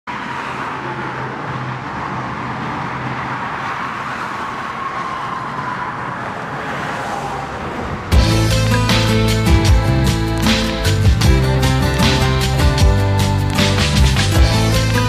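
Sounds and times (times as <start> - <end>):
highway traffic noise: 0.0 - 15.0
vehicle passing with whine: 0.1 - 9.0
music with strummed guitar: 8.2 - 15.0.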